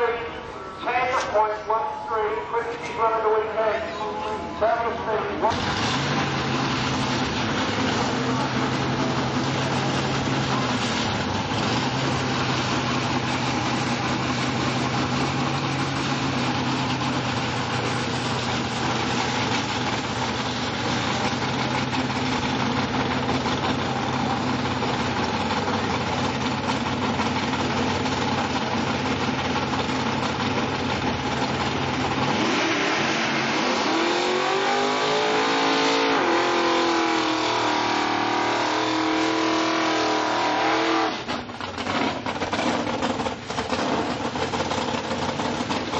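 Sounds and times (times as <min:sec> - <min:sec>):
drag car engine idling: 0:04.0 - 0:32.6, 0:41.2 - 0:45.9
drag car engine revving hard: 0:05.4 - 0:45.9.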